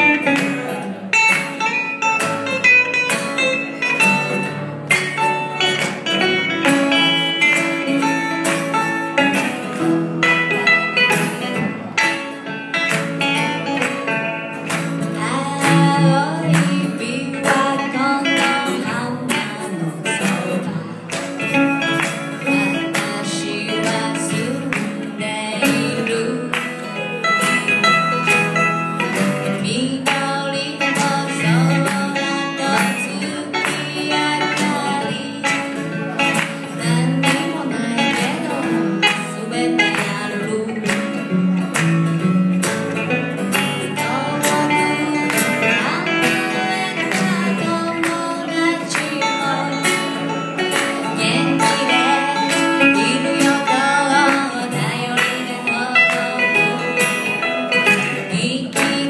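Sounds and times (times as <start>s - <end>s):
acoustic guitar strumming: 0.0s - 59.0s
banjo picking: 0.0s - 59.0s
woman singing: 15.0s - 28.3s, 29.0s - 41.5s, 43.5s - 59.0s.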